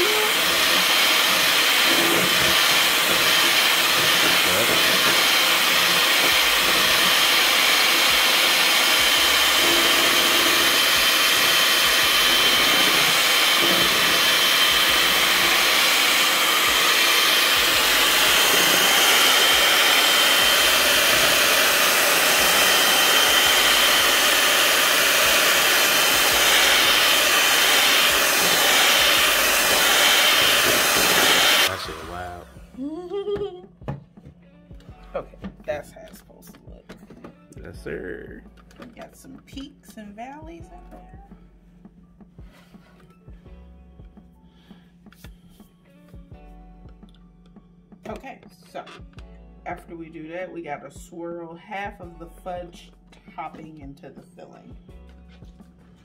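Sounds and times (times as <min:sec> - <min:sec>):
electric mixer motor whining: 0:00.0 - 0:32.9.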